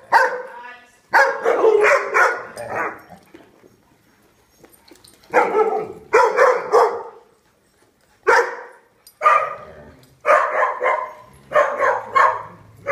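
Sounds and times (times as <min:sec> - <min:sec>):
dog barking: 0:00.1 - 0:03.0, 0:05.3 - 0:07.3, 0:08.2 - 0:09.6, 0:10.2 - 0:12.9.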